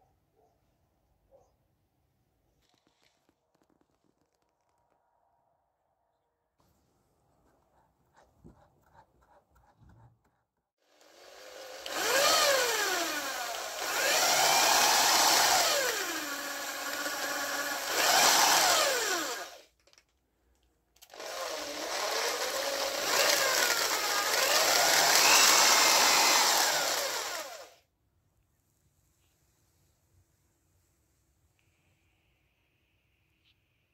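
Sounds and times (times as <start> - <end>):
electric drill whining: 10.9 - 19.7, 21.0 - 27.8.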